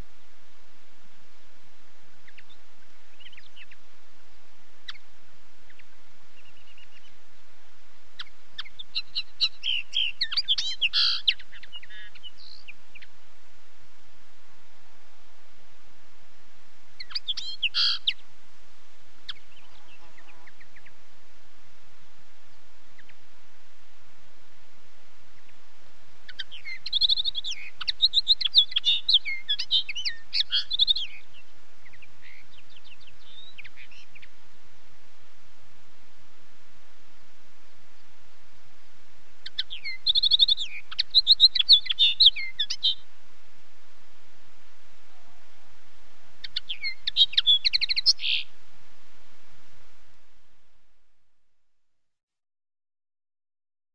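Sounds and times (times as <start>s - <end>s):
background hiss: 0.0s - 51.8s
bird twittering: 8.2s - 13.1s, 17.0s - 18.2s, 26.3s - 34.3s, 39.4s - 43.0s, 46.4s - 48.5s.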